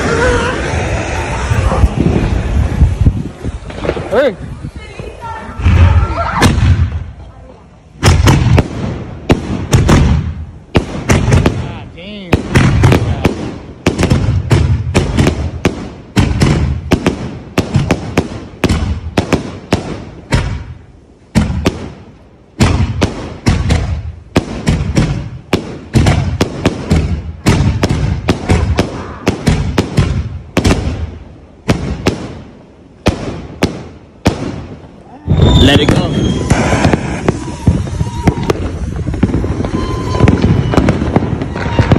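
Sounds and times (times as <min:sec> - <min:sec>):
fireworks bursting bangs: 0:00.0 - 0:41.9
firework launch thumps: 0:01.6 - 0:04.4, 0:35.3 - 0:41.9.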